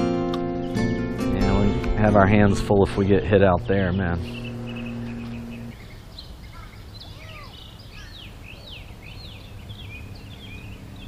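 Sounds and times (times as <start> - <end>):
birds chirping: 0.0 - 11.0
low background rumble: 2.3 - 6.6.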